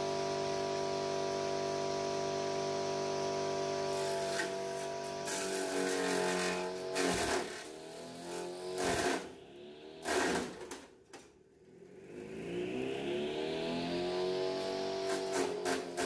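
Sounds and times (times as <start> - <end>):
chaff cutter motor whine: 0.0 - 10.8, 12.0 - 16.0
fodder chopping bursts: 5.3 - 9.3, 10.0 - 10.8.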